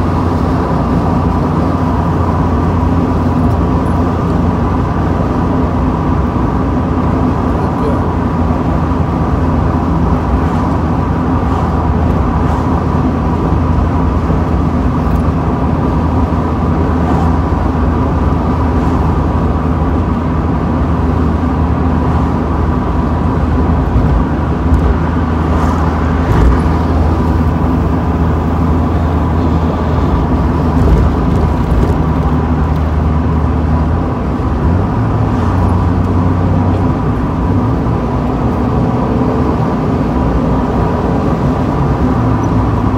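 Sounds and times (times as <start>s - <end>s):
car engine running: 0.0s - 42.9s
road and wind noise: 0.0s - 42.9s.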